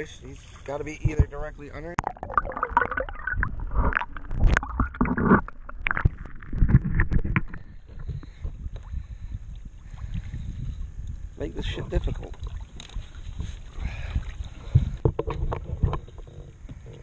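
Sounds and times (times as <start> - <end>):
muffled underwater rumbles: 0.0 - 17.0
water sloshing and gurgling: 0.0 - 17.0
water splashing: 0.3 - 8.3, 11.7 - 14.9.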